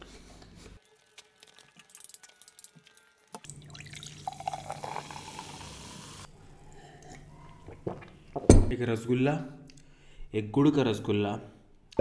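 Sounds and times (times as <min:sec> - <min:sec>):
cola pouring and fizzing: 0:00.8 - 0:06.3.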